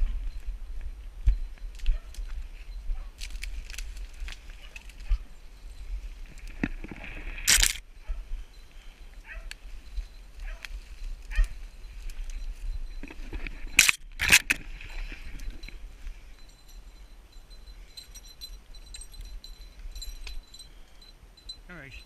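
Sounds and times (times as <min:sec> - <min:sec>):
footsteps through undergrowth: 0:00.1 - 0:16.6
branches brushing against clothing: 0:01.6 - 0:16.6
twigs snapping: 0:03.2 - 0:05.1, 0:07.4 - 0:07.8, 0:13.8 - 0:14.6.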